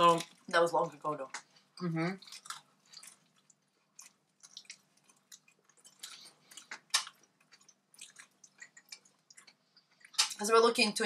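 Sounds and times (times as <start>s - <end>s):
people chewing: 0.0s - 10.5s
wet mouth sounds: 1.8s - 10.4s.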